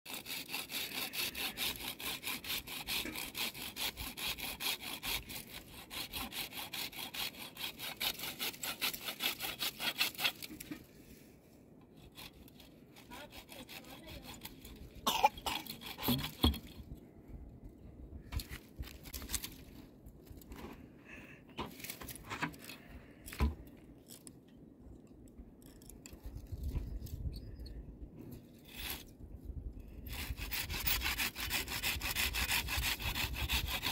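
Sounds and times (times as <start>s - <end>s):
hand saw cutting wood: 0.1s - 10.9s, 11.9s - 16.9s, 28.5s - 29.2s, 30.0s - 33.9s
knocks and scrapes: 9.6s - 11.2s, 15.4s - 17.0s, 18.2s - 20.9s, 21.5s - 24.3s, 28.2s - 29.1s.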